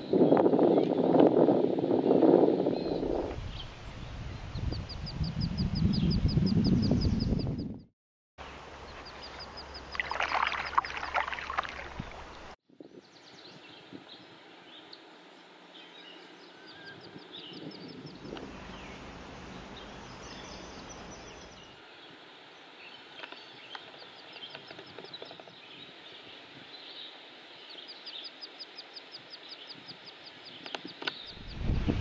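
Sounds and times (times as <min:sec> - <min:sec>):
bird chirps: 0:04.3 - 0:07.9, 0:08.8 - 0:11.0, 0:15.9 - 0:21.8
outdoor background hiss: 0:08.4 - 0:32.0.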